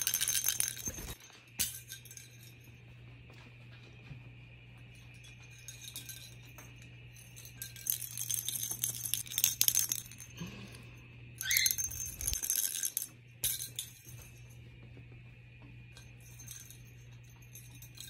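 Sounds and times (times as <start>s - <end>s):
jingle-ball toy rattling: 0.0s - 2.8s, 4.9s - 10.4s, 11.4s - 14.7s, 15.9s - 18.0s.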